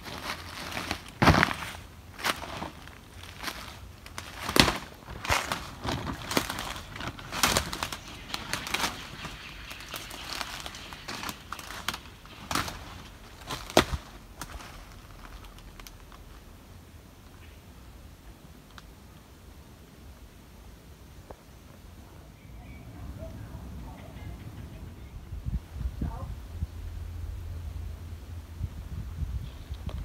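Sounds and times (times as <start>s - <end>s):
footsteps crunching dry leaves: 0.0s - 16.2s.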